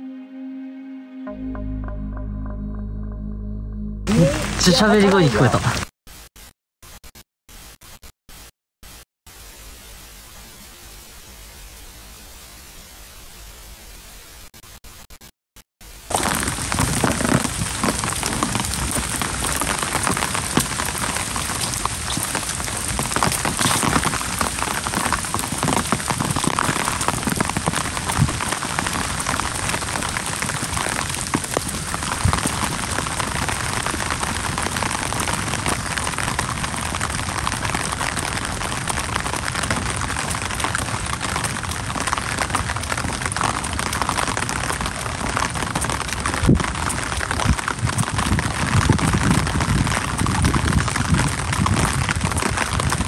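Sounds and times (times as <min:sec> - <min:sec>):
rain on wet pavement: 0:04.1 - 0:05.9, 0:15.9 - 0:53.0.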